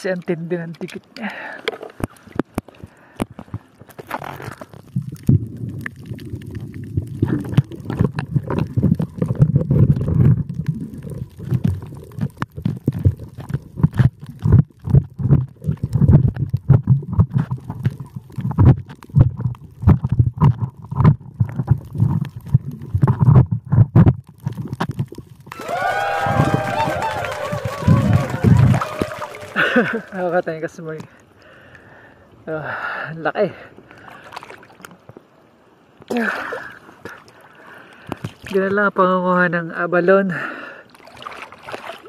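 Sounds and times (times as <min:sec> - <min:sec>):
sharp underwater clicks: 0:00.1 - 0:25.6
underwater rumbling and gurgling: 0:03.4 - 0:25.5, 0:26.3 - 0:30.2.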